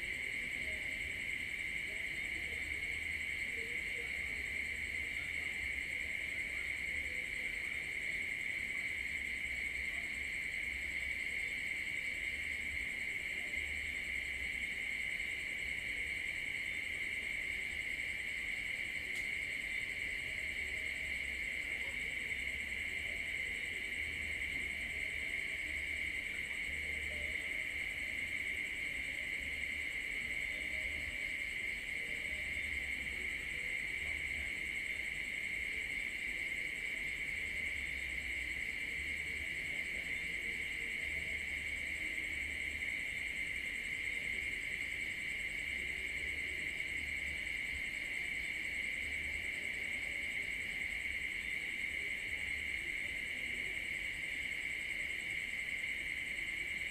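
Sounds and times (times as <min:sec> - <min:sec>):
crickets and night insects trilling: 0:00.0 - 0:56.9.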